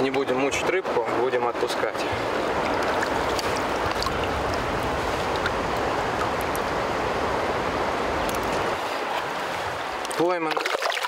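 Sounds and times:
river water rushing over gravel: 0.1 - 11.0
small water splashes: 2.1 - 6.7, 8.2 - 11.0.

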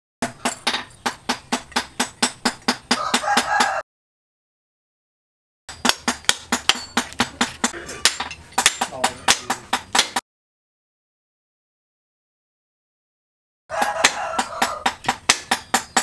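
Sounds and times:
knocking on steel anvil: 0.2 - 3.8, 5.8 - 10.2.

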